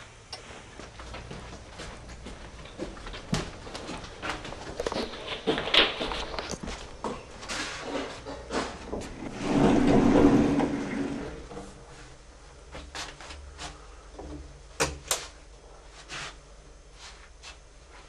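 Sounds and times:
door scraping open: 7.5s - 11.7s.

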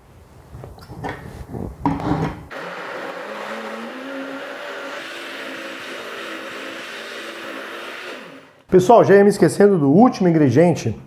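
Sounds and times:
blender running: 2.5s - 8.7s.

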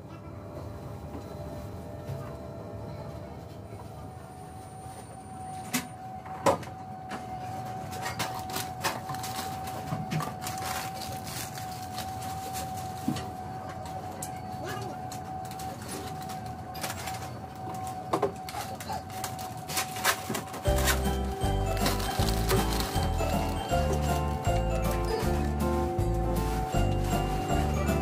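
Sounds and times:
machine steady tone: 0.0s - 28.0s
machine low hum: 20.6s - 28.0s.

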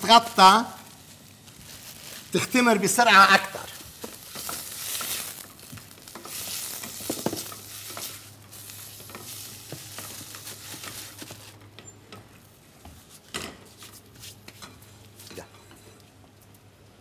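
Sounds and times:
onion sizzling in oil: 0.0s - 11.6s.

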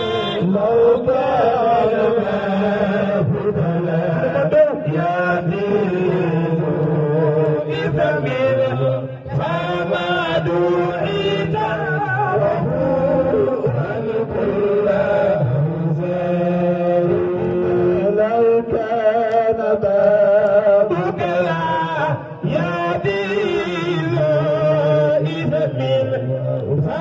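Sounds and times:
man chanting into a microphone: 0.0s - 27.0s.

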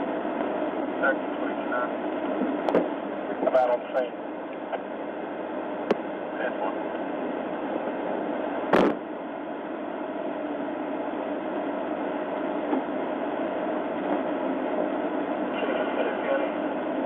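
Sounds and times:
vehicle engines rumbling: 13.8s - 17.0s.

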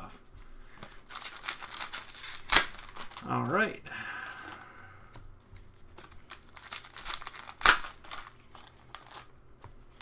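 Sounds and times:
foil wrapper crinkling and tearing: 1.0s - 3.6s, 6.0s - 9.3s.

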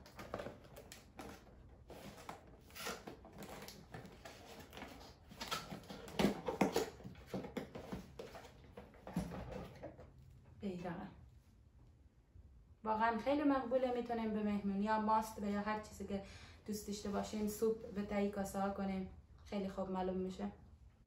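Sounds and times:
cardboard and wrapping rustling: 0.0s - 10.2s.

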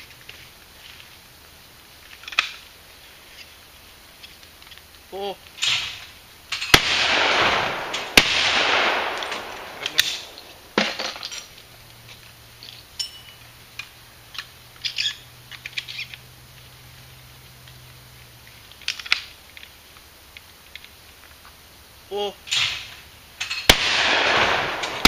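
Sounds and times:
shells clinking: 5.6s - 11.6s, 12.6s - 16.2s, 22.5s - 25.0s.

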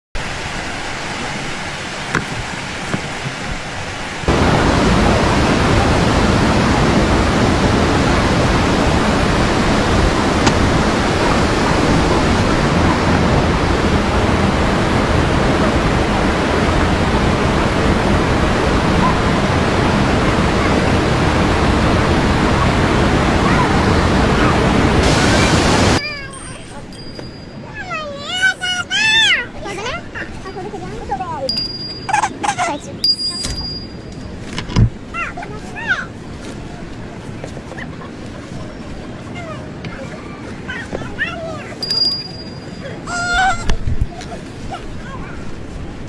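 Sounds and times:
steady rushing noise: 0.2s - 32.1s.

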